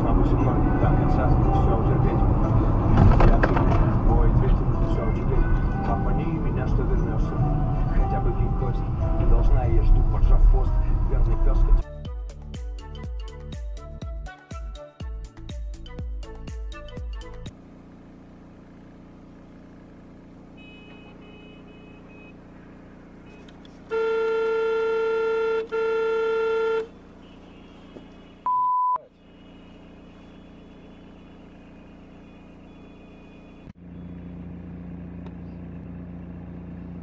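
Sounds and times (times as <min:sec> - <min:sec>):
car driving hum: 0:00.0 - 0:11.8, 0:17.6 - 0:37.0
car horn honking: 0:20.5 - 0:22.6, 0:23.2 - 0:33.7
short high beep: 0:28.4 - 0:29.1.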